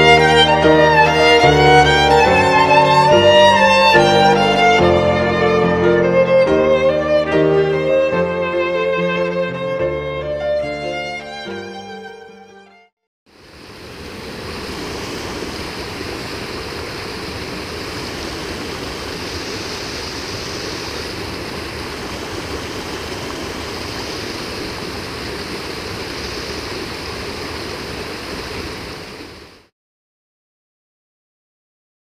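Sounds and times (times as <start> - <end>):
waterfall rushing over rocks: 13.3 - 29.7.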